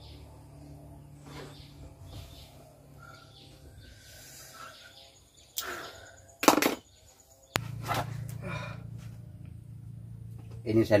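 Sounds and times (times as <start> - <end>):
low steady hum: 0.0 - 11.0
faint bird chirps: 1.2 - 8.0.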